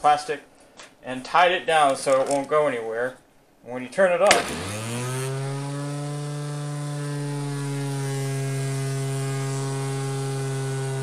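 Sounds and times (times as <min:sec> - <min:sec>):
orbital sander motor hum: 0:04.4 - 0:11.0.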